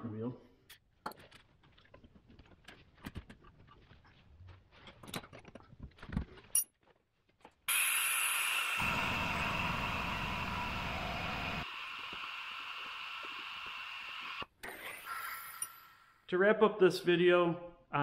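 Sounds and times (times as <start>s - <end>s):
fluid extractor hissing: 7.7s - 16.2s.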